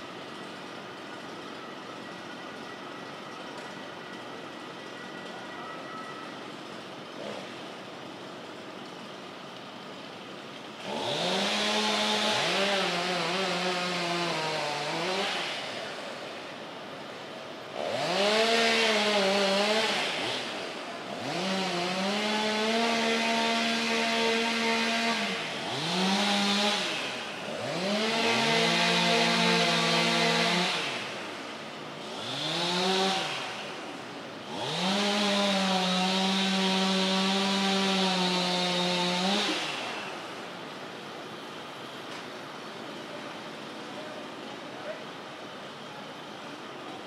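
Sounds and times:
chainsaw cutting wood: 7.1 - 7.7, 10.6 - 16.4, 17.7 - 40.6.

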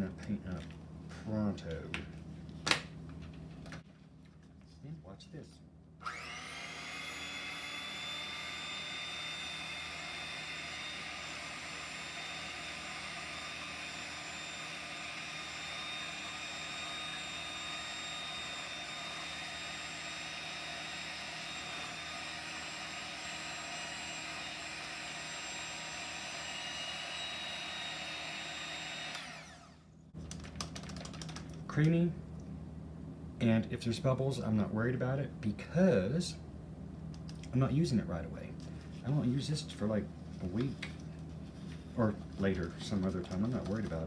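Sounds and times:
electric hand mixer whining: 6.0 - 30.0.

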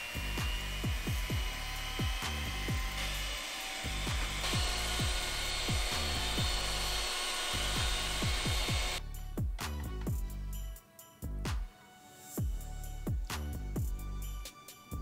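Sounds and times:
electric hand mixer whining: 0.0 - 9.0
background music with deep bass: 0.0 - 15.0.

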